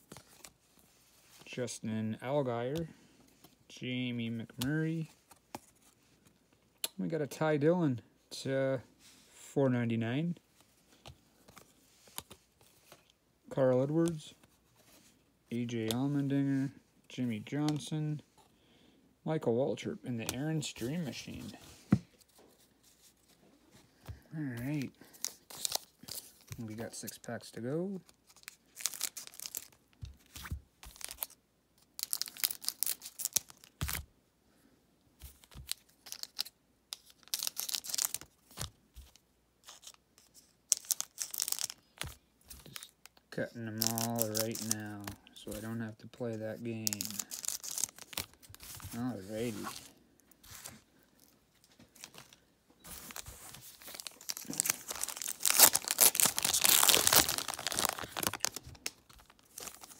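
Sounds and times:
foil wrappers crinkling and tearing: 28.2s - 29.8s, 30.8s - 34.0s, 35.5s - 38.7s, 40.7s - 43.0s, 43.7s - 45.1s, 46.8s - 49.9s, 52.0s - 59.9s.

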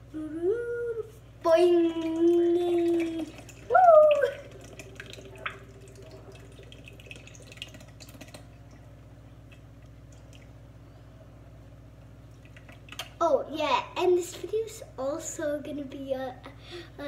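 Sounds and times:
milk trickling into metal bowl: 1.8s - 8.8s.

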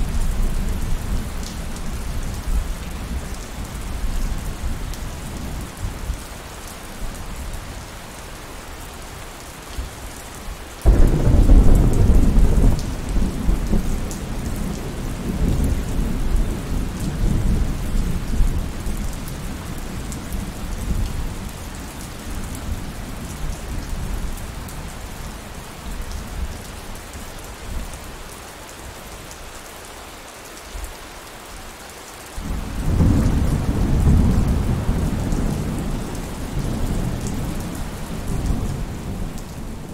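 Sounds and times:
steady rain falling: 0.0s - 39.9s
thunder rumbling: 10.8s - 18.4s, 32.4s - 39.9s.

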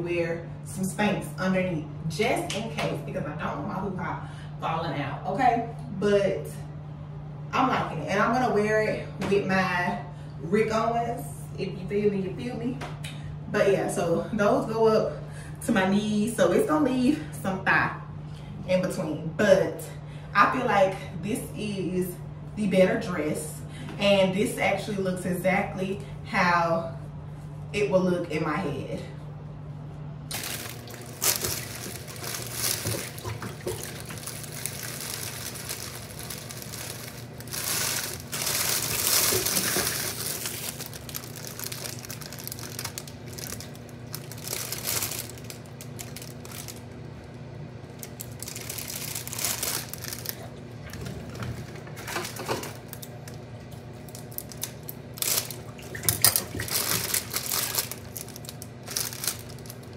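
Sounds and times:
sharp plastic crack: 30.3s - 46.8s, 54.1s - 59.9s
plastic wrapping crinkling: 30.3s - 59.9s.

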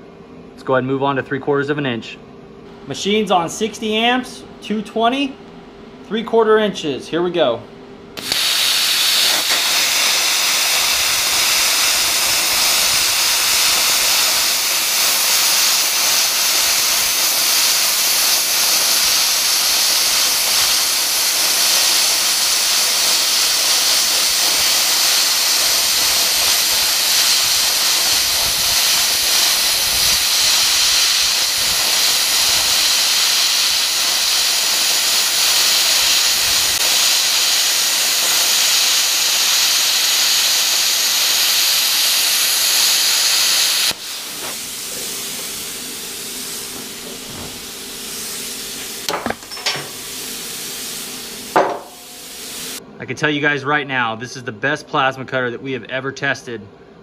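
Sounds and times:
plasma cutter hissing: 8.2s - 52.8s.

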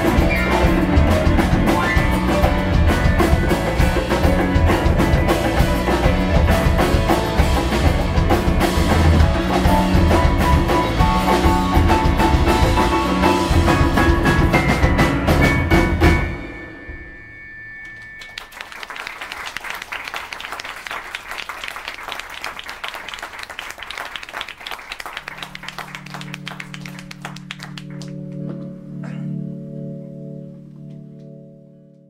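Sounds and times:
low keyboard chord: 0.0s - 16.6s, 25.4s - 32.0s
audience applauding: 17.9s - 28.6s.

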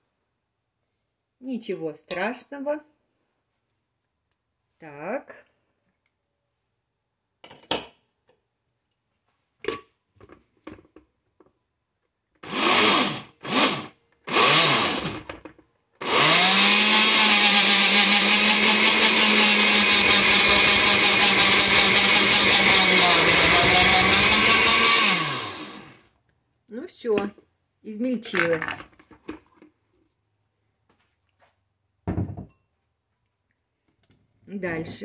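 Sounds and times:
blender grinding dry cereal: 12.4s - 15.4s, 16.0s - 26.1s.

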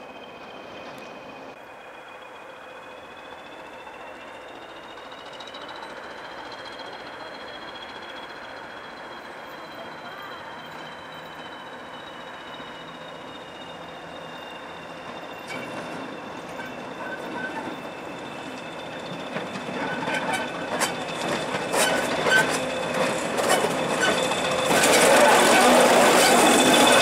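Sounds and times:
diesel locomotive passing: 0.0s - 27.0s
high-pitched whine: 0.0s - 27.0s
wheels clicking over rail joints: 12.3s - 27.0s.

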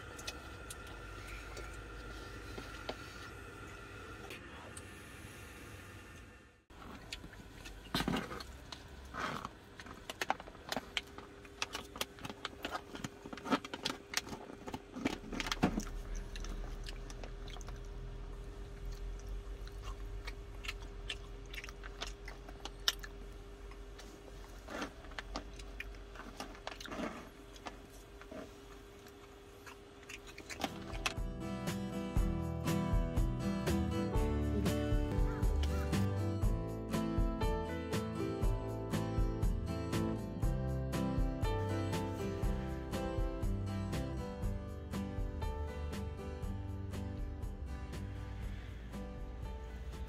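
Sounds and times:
foil pouch crinkling: 8.2s - 17.8s
person chewing: 9.3s - 31.2s.

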